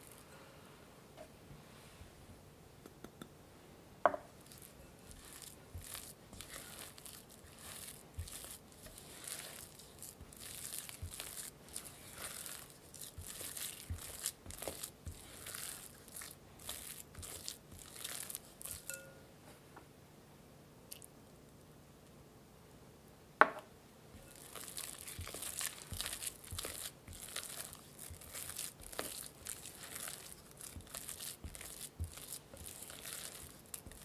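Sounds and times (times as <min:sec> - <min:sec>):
spatula scraping glass bowl: 0:04.4 - 0:19.0, 0:24.2 - 0:34.0.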